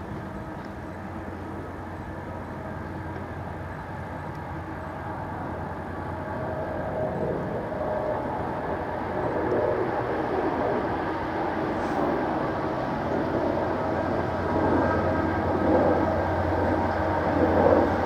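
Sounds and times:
locomotive engines and brakes droning: 0.0s - 18.0s.

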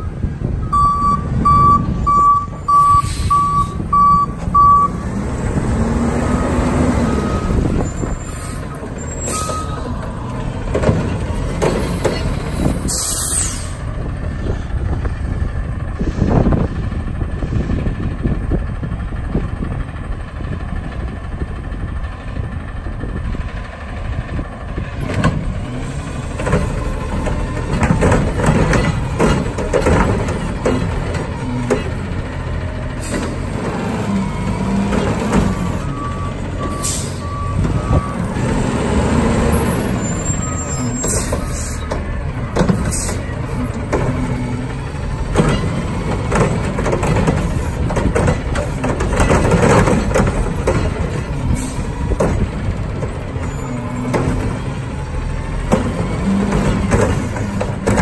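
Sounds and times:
reverse alarm beeping: 0.0s - 5.0s
diesel engine revving: 0.0s - 58.0s.

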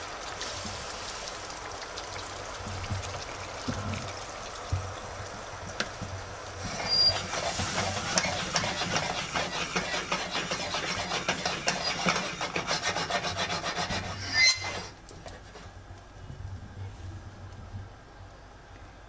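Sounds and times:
pan scraping and rattling on stovetop: 6.6s - 15.7s.

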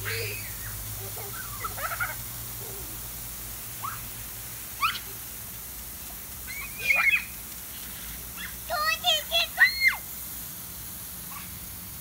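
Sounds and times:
children squealing: 0.0s - 2.1s, 6.4s - 7.4s.

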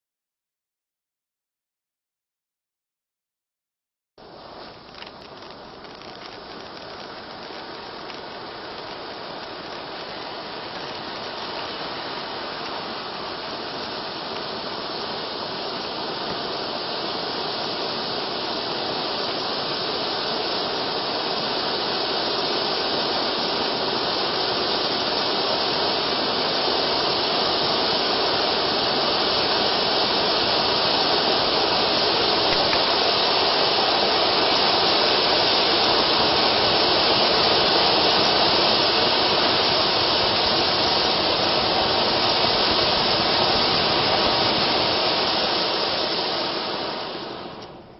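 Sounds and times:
firework fountain hissing: 4.2s - 47.9s.

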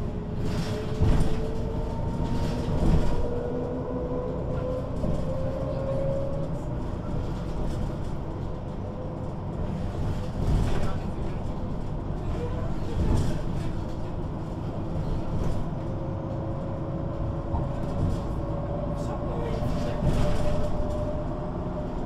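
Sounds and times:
bus body rattles: 0.0s - 22.0s
bus diesel engine rumble: 0.0s - 22.0s.

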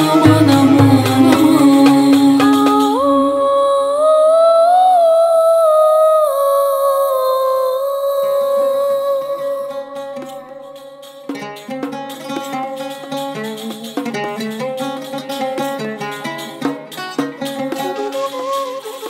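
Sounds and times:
percussion and bass: 0.0s - 3.0s
woman singing a long note: 0.0s - 10.8s.

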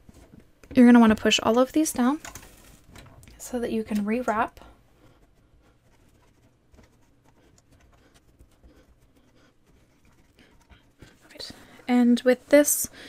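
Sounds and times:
yarn scratching and rustling: 5.0s - 11.4s.

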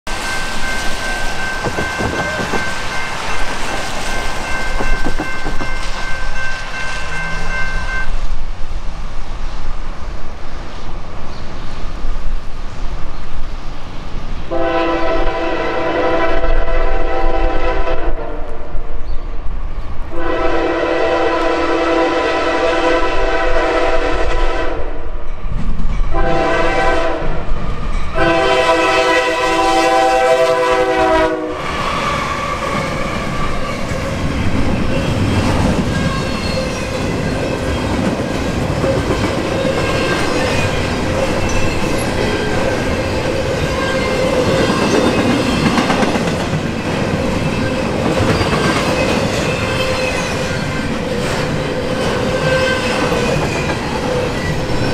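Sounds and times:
freight train cars rumbling past: 0.0s - 54.9s
locomotive air horn blasts: 14.5s - 18.5s, 20.1s - 25.0s, 26.1s - 27.4s, 28.1s - 33.8s.

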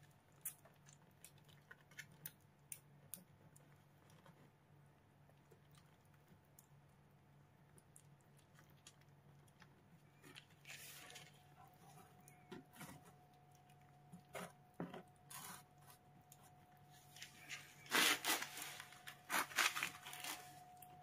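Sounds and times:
kitten licking and chewing food: 0.0s - 18.1s
plastic sachet crinkling: 17.2s - 20.9s.

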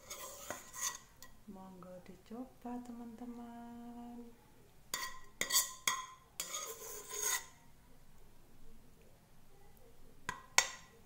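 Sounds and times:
spoon scraping plate: 0.0s - 1.4s, 4.9s - 7.6s
spoon clinking on ceramic plate: 5.0s - 7.5s.

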